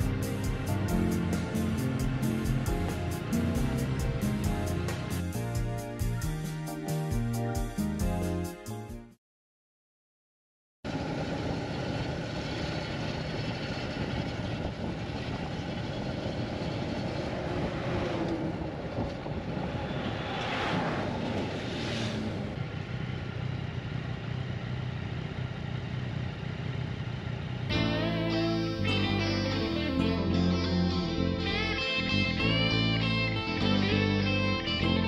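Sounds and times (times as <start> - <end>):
motorcycle engine rumble: 0.0 - 6.4, 10.9 - 20.5, 22.2 - 35.0
wind noise on microphone: 13.0 - 21.6.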